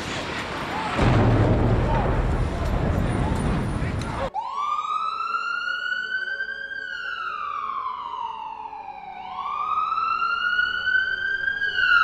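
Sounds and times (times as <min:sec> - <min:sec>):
fire engine siren wailing: 0:04.3 - 0:12.0.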